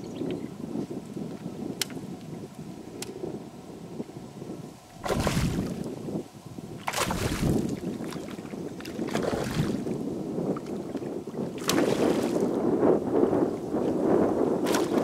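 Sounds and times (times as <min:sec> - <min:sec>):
wind on open water: 0:00.0 - 0:15.0
water surging: 0:05.0 - 0:05.9, 0:06.8 - 0:09.9.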